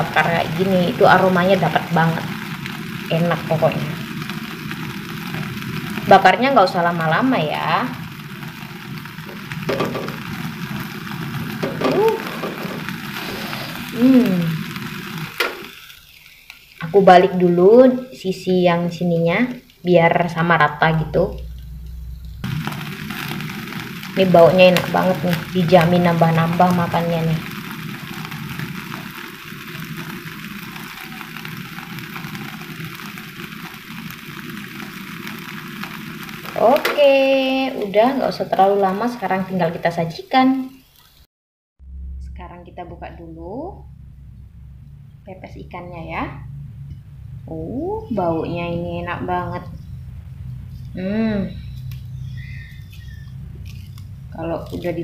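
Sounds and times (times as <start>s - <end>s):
fish sizzling and crackling: 0.0s - 55.0s
short gliding pitched sounds: 20.8s - 22.9s, 41.8s - 54.7s.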